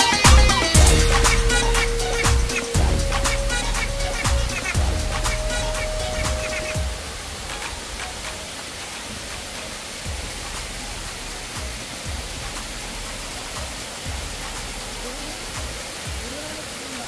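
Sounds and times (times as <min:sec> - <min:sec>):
stream cascading over rocks: 0:00.0 - 0:17.0
waterfall rushing: 0:00.0 - 0:17.0
faint low thumps: 0:00.3 - 0:08.4, 0:09.1 - 0:16.3.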